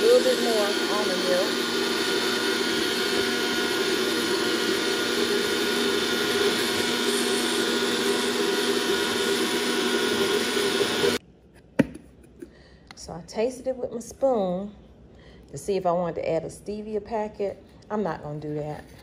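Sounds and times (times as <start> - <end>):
electric blender running: 0.0 - 11.2.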